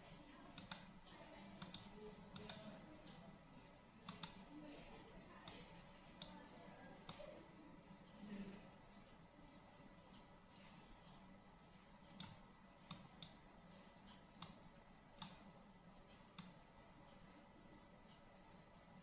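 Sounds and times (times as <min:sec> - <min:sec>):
low room noise: 0:00.0 - 0:19.0
computer mouse clicks: 0:00.6 - 0:01.0, 0:01.6 - 0:02.8, 0:04.0 - 0:04.5, 0:05.4 - 0:06.4, 0:07.0 - 0:07.3, 0:12.1 - 0:13.4, 0:14.1 - 0:14.6, 0:15.2 - 0:15.5, 0:16.3 - 0:16.6.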